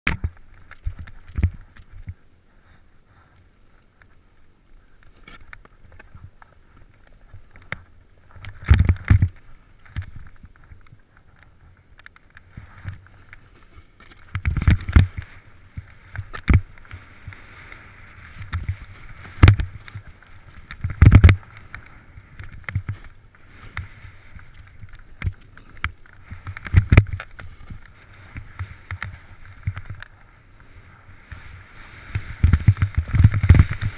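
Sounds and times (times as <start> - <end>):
snowboard swishing on snow: 16.8 - 20.5, 30.1 - 33.9.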